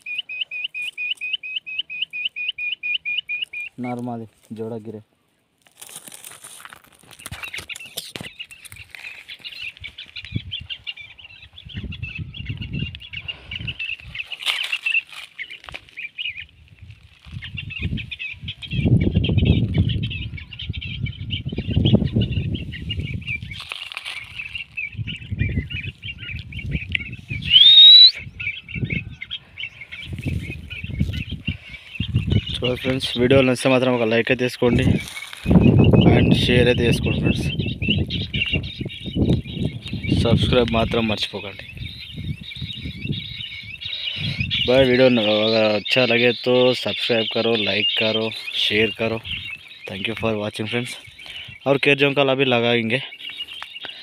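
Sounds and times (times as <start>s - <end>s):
sharp rising squeak: 27.5s - 28.1s
high chirring: 27.5s - 28.2s.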